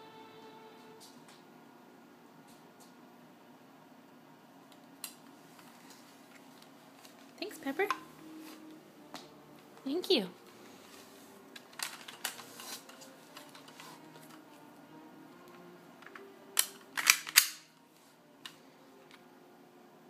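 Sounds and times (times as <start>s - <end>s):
plastic handling clicks: 11.6s - 14.4s, 15.5s - 17.6s.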